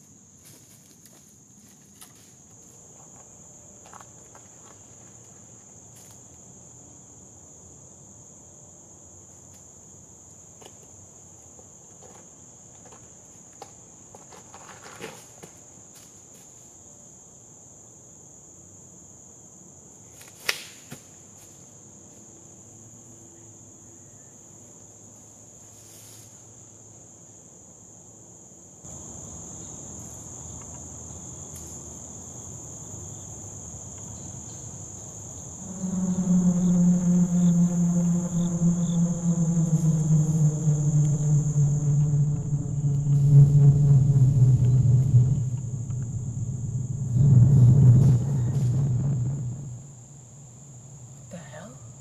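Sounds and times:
insect chorus: 0.0s - 52.0s
loud low droning tone: 35.6s - 49.9s.

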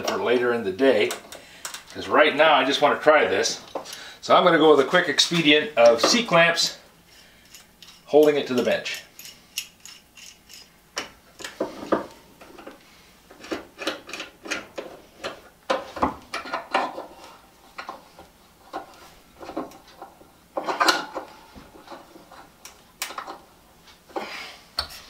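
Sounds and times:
clamps clicking and knocking: 13.4s - 17.1s.

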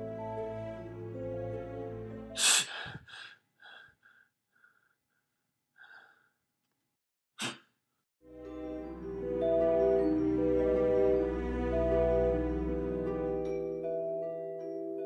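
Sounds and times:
slow sad music: 0.0s - 3.0s, 8.2s - 15.0s
short breaths: 2.4s - 5.0s, 5.8s - 6.3s.

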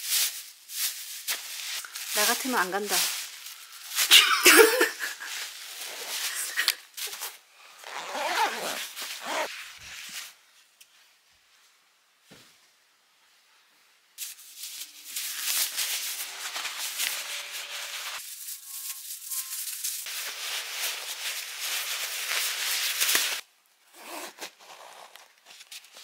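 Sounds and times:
fabric bag and bubble wrap rustling: 0.0s - 10.5s, 14.2s - 23.4s, 24.0s - 26.0s
nylon jacket rustling: 0.8s - 10.3s, 14.2s - 23.4s, 24.0s - 26.0s.

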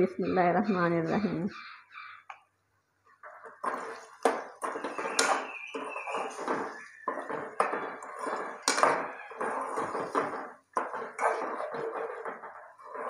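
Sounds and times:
spoon scraping metal pan: 3.5s - 13.0s.

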